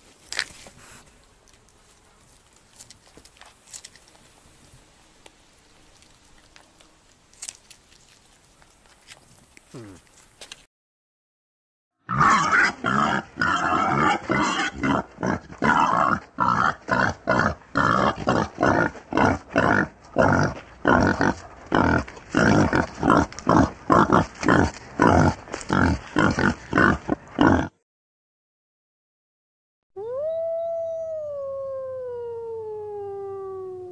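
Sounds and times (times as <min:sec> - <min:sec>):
pigs grunting: 0:09.7 - 0:10.1, 0:12.1 - 0:27.8.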